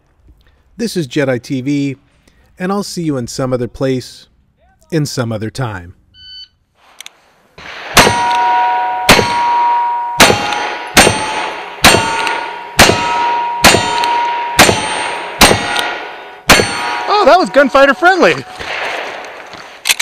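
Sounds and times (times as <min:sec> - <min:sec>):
gunshots: 0:07.6 - 0:09.6, 0:10.2 - 0:20.0
steel target ringing: 0:07.6 - 0:19.3.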